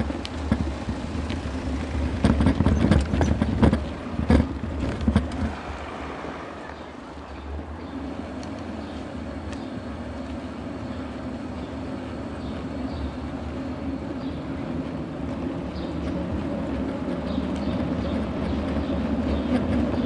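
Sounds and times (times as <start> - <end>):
bicycle rolling over brick paving: 0.0 - 6.1.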